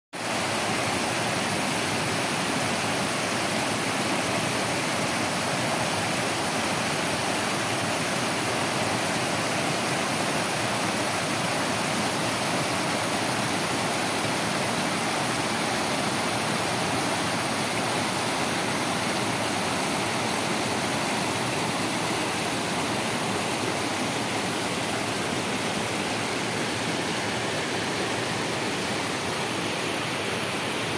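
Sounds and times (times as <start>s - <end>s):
water rushing over weir: 0.2s - 30.9s.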